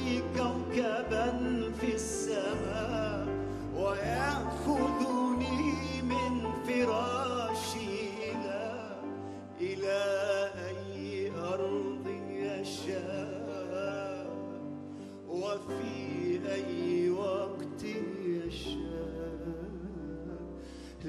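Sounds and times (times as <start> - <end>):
man singing with vocal runs: 0.0 - 14.5
grand piano: 0.0 - 21.0.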